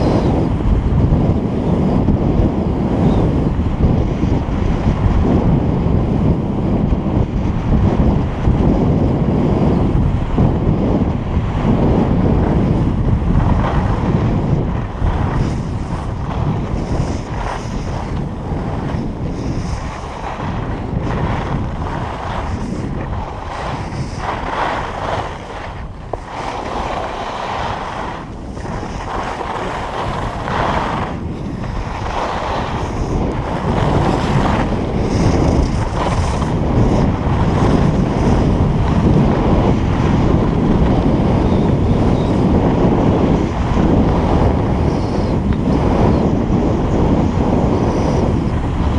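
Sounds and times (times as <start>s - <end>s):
wind buffeting microphone: 0.0s - 48.9s
skis scraping on snow: 10.8s - 48.9s.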